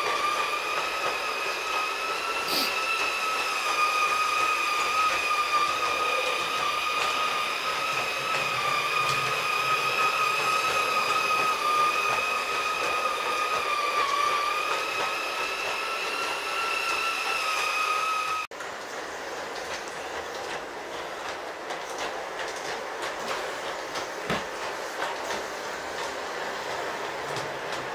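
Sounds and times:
model train motor whine: 0.0 - 18.5
model train wheels rolling: 0.0 - 27.9
wheels clicking over rail joints: 0.0 - 27.9.

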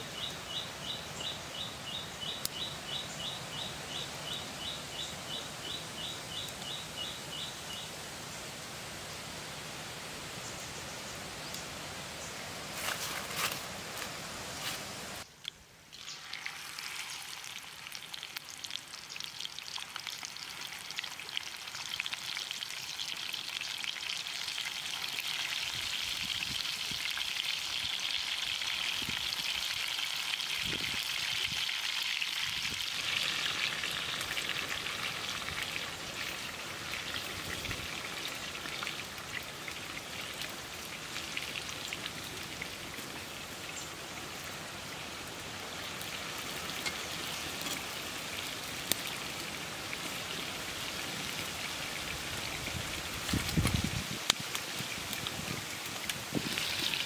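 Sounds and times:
chicken sizzling in hot oil: 15.9 - 57.0.

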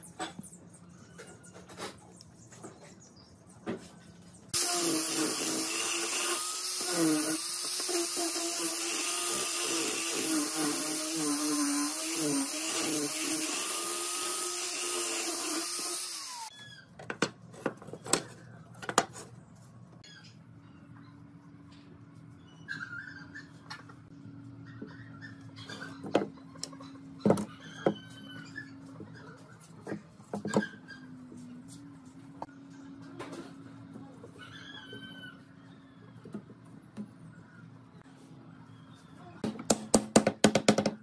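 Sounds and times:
angle grinder sanding wood: 4.6 - 16.5.

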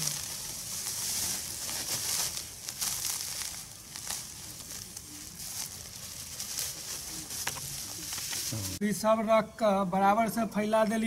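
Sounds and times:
bran pouring from a sack: 0.0 - 8.8
plastic sack rustling: 0.0 - 8.8.

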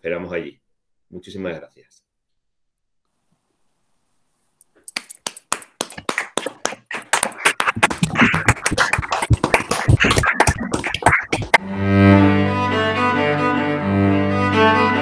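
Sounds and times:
people clapping: 4.8 - 11.6.

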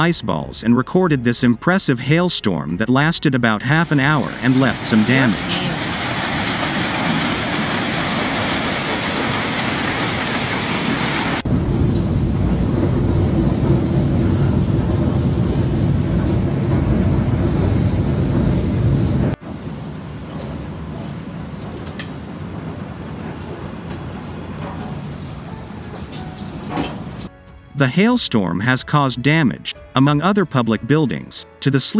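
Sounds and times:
hailstones pelting roofs: 3.8 - 11.4.

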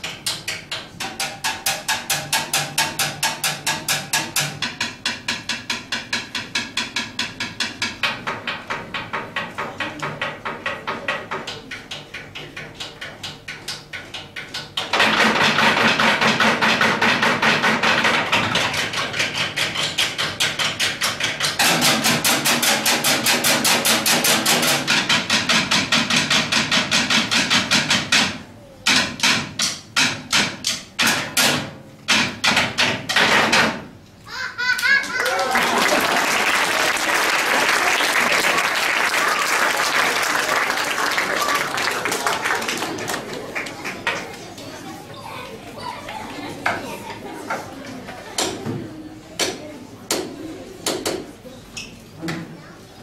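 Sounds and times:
drumming sticks on wooden desks: 0.0 - 34.0, 45.3 - 51.4.

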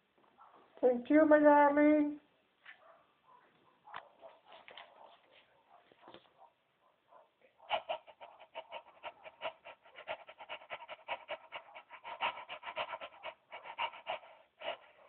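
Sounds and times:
dog panting: 7.1 - 15.0
dog licking: 7.7 - 15.0.

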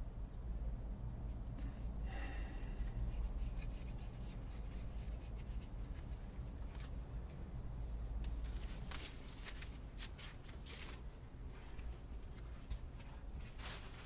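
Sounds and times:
steady low rumble: 0.0 - 14.0
hands rubbing fibers into yarn: 2.8 - 7.0.

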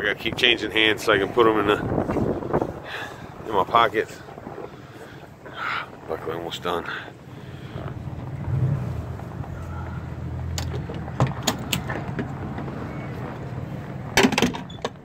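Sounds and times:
strong wind on microphone: 0.0 - 6.4.

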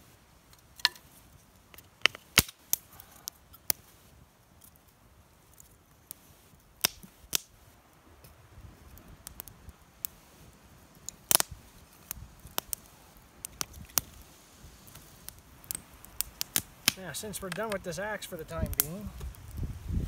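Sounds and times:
kindling sticks clacking: 0.5 - 1.1.

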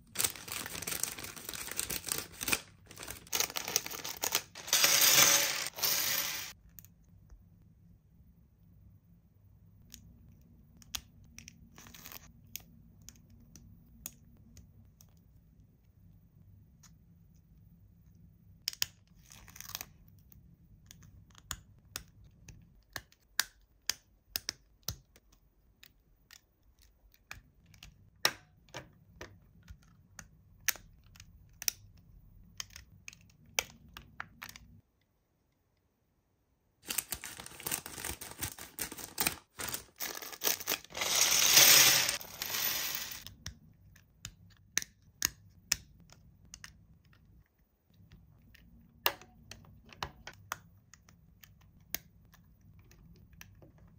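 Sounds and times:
packaging rustling and crinkling: 0.0 - 6.5, 36.8 - 43.2.

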